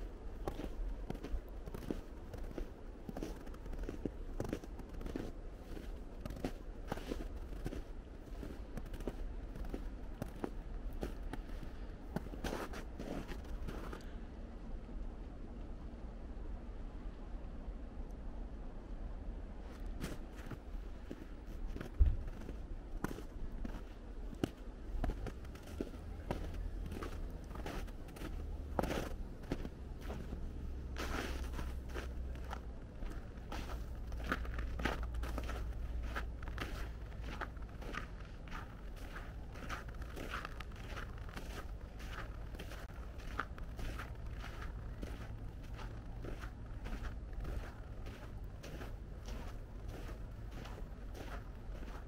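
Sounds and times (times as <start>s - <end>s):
footsteps crunching in snow: 0.0s - 14.0s, 19.7s - 52.0s
low steady rumble: 0.0s - 52.0s
low thump: 22.0s - 22.3s.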